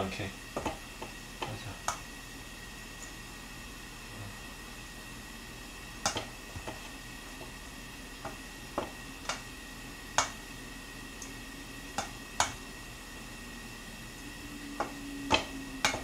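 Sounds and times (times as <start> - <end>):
utensil tapping against bowl: 0.5 - 2.0, 14.8 - 16.0.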